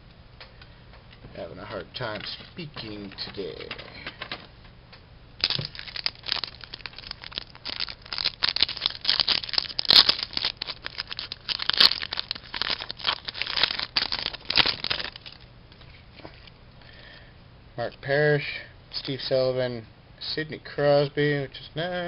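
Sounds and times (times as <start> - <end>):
foil wrapper crinkling and tearing: 5.4 - 15.5
foil wrapper snapping: 5.4 - 15.5.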